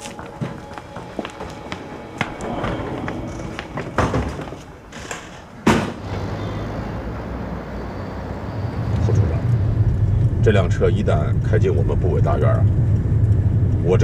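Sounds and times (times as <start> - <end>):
footsteps: 0.0 - 6.0
car door slamming: 5.6 - 6.1
low engine hum: 6.0 - 14.0.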